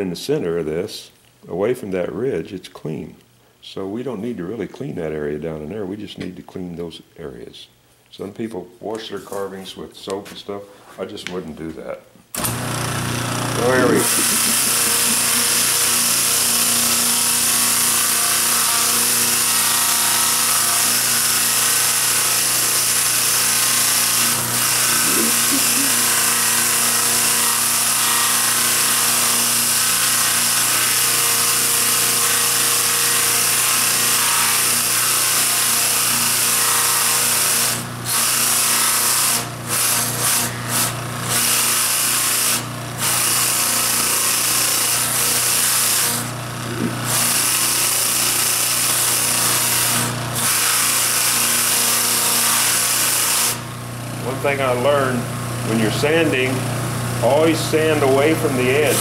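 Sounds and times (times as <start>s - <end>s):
sander flaps hissing on wood: 12.4s - 16.6s
electric motor humming: 12.4s - 37.9s, 38.6s - 59.0s.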